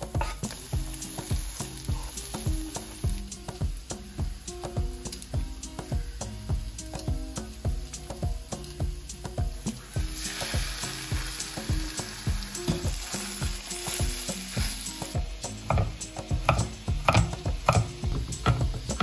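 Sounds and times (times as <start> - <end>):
meat sizzling in a frying pan: 0.0 - 19.0.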